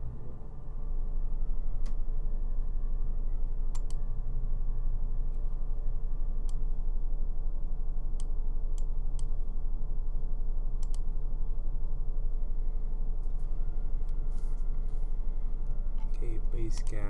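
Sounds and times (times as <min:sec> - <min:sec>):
low electrical hum: 0:00.0 - 0:17.0
computer mouse clicking: 0:03.7 - 0:04.0, 0:10.8 - 0:11.0.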